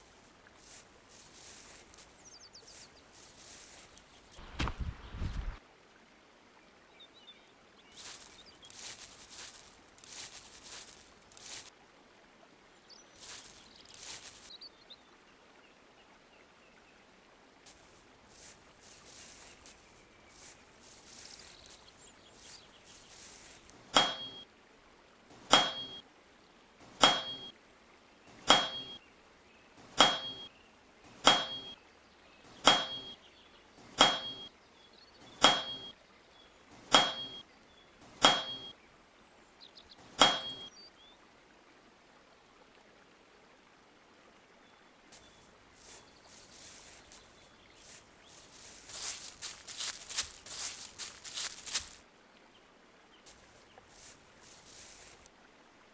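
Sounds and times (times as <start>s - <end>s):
footsteps in dry leaves: 0.0s - 5.6s, 7.9s - 11.7s, 13.0s - 14.5s, 17.7s - 23.9s, 45.1s - 52.0s, 53.3s - 55.3s.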